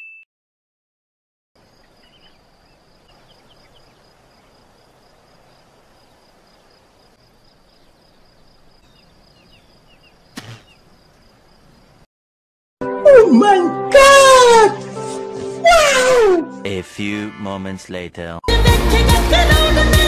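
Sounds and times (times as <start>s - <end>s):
faint bird chirps: 1.6s - 4.8s, 5.4s - 12.0s
soft outdoor hiss: 1.6s - 12.0s
high insect trill: 1.6s - 12.1s
short thud: 10.4s - 10.7s.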